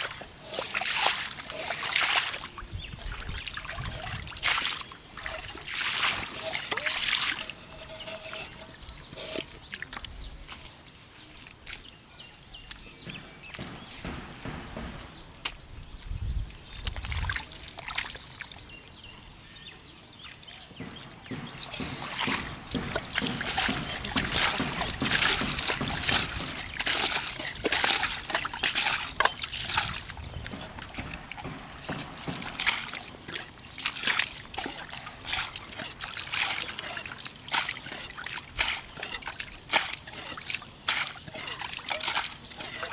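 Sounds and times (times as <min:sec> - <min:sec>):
water splashing from bowl: 0:00.0 - 0:10.0, 0:21.6 - 0:42.9
hands digging in wet mud: 0:00.0 - 0:12.0, 0:21.5 - 0:42.9
muddy water sloshing: 0:00.0 - 0:12.0, 0:13.5 - 0:18.7, 0:20.2 - 0:42.9.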